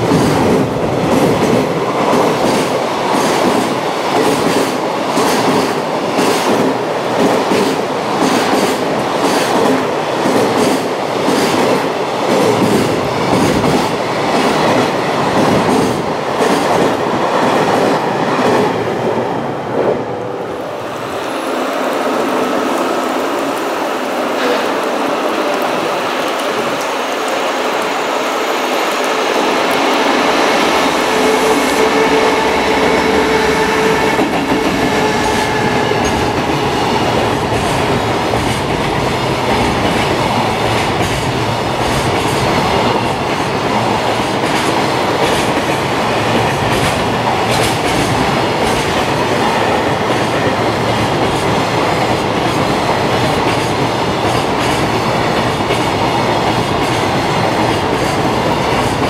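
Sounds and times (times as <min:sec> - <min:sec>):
electric train whine: 0:12.6 - 0:59.0
wagons clickety-clack over rail joints: 0:31.2 - 0:59.0.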